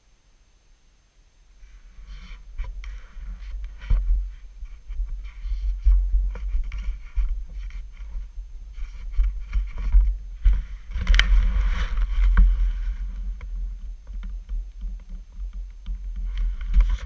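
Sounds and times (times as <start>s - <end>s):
wind rumble on microphone: 1.6s - 17.0s
knocks and rubbing on camera: 2.0s - 17.0s.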